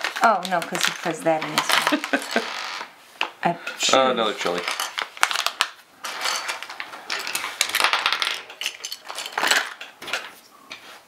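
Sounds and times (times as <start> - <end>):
plastic pieces clicking: 0.0 - 2.5, 4.5 - 10.3
plastic bag crinkling: 0.0 - 2.9, 4.2 - 9.9.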